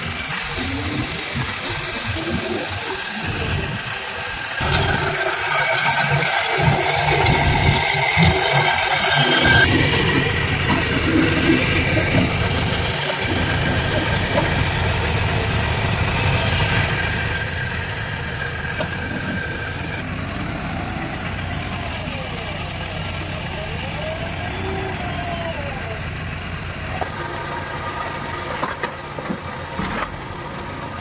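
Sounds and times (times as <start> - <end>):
steady high whine: 0.0 - 20.1
heavy machinery diesel engines: 0.0 - 31.0.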